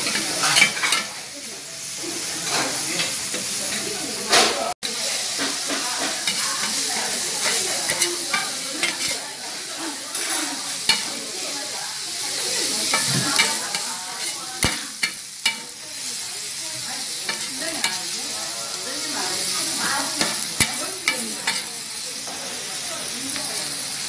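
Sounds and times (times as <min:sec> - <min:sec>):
rice sizzling on griddle: 0:00.0 - 0:24.0
spatula scraping pan: 0:05.2 - 0:21.8.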